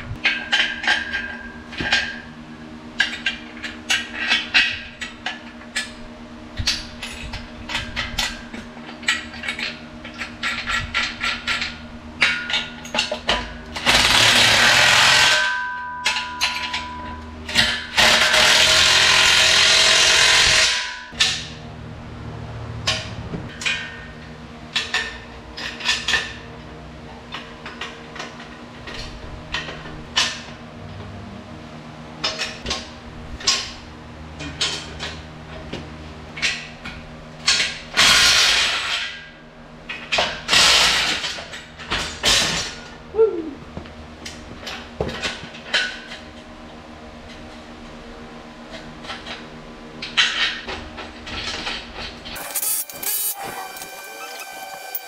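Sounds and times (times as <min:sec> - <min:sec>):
impact wrench hammering: 0:11.2 - 0:21.6, 0:52.4 - 0:55.0
hand ratchet clicking: 0:52.4 - 0:55.0.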